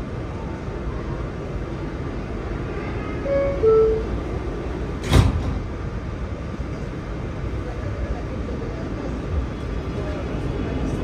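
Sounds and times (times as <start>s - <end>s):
subway doors closing thud: 0.0s - 6.9s
subway car rumble and hum: 0.0s - 11.0s.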